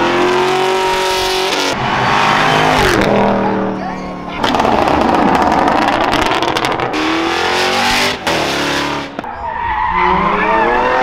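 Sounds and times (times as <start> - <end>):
car engine revving hard: 0.0 - 3.5, 4.4 - 9.2.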